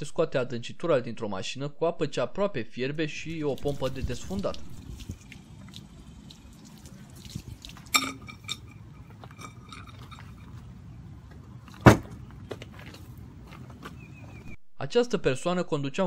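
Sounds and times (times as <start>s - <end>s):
plunger popping off metal: 7.8s - 10.6s
metallic clink: 7.9s - 10.6s.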